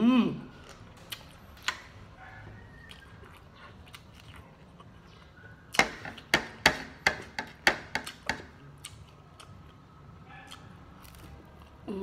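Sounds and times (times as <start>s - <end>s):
sharp knocks on hard surface: 5.8s - 8.5s.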